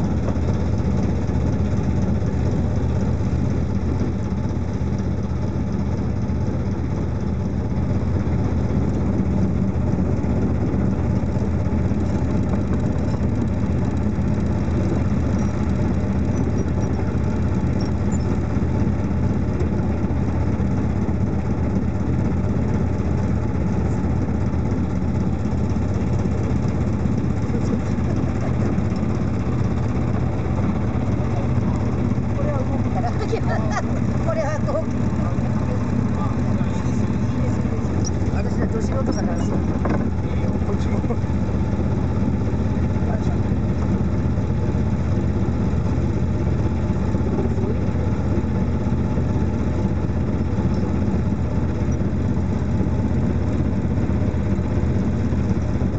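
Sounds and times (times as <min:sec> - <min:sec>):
motorboat engine humming: 0:00.0 - 0:55.9.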